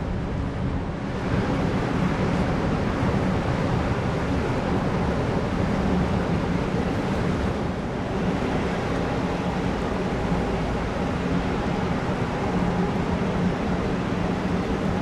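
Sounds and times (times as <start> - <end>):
ferry engines humming: 0.0 - 15.0.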